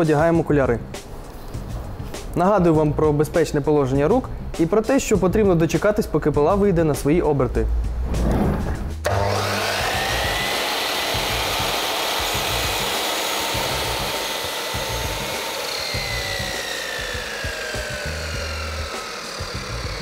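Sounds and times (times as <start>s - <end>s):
mitre saw motor whine: 9.0s - 20.0s
saw blade cutting wood: 9.0s - 20.0s.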